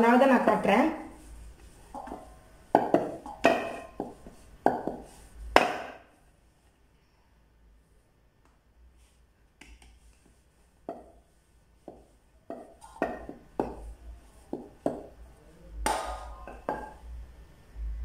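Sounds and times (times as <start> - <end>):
rolling pin knocking on wooden board: 2.0 - 6.0, 10.9 - 11.2, 11.8 - 15.2, 15.8 - 17.0.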